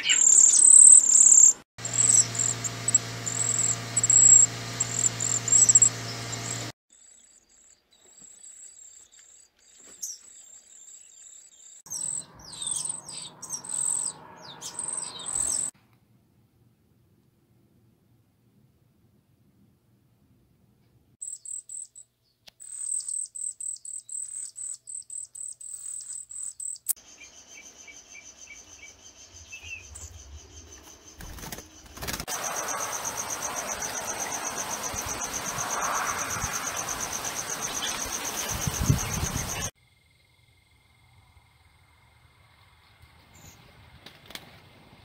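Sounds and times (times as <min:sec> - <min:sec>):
birds giving high thin calls: 0:00.0 - 0:06.7, 0:08.0 - 0:15.7, 0:22.6 - 0:39.7
fast-pulsing high bird trill: 0:00.0 - 0:06.7, 0:11.9 - 0:15.7, 0:31.2 - 0:39.7
loud hiss: 0:32.3 - 0:39.7.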